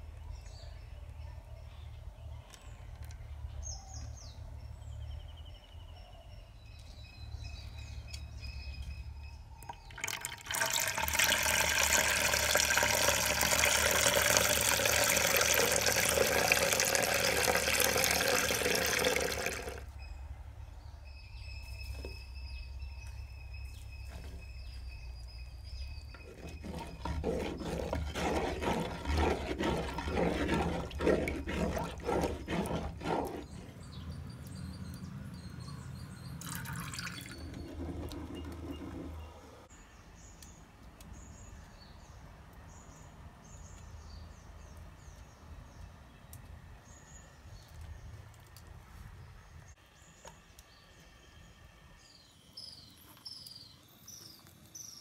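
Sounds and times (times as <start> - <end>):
thick liquid pouring into clay pot: 9.6 - 19.9, 26.1 - 33.7, 36.4 - 39.2
wooden spoon stirring liquid: 9.7 - 19.8, 26.1 - 33.8, 36.4 - 39.3.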